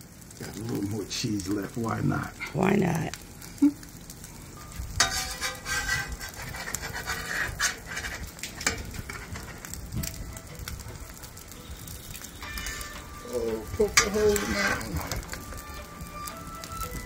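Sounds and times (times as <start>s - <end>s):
omelet frying on griddle: 0.0s - 17.0s
metal spatula scraping griddle: 4.9s - 11.5s, 12.2s - 17.0s.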